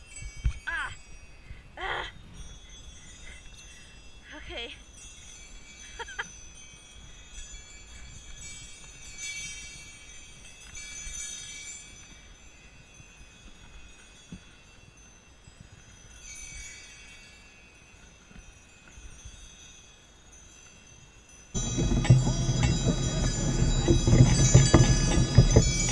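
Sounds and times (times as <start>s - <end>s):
sleigh bells jingling: 0.0s - 25.9s
faint low rumble: 21.6s - 25.9s.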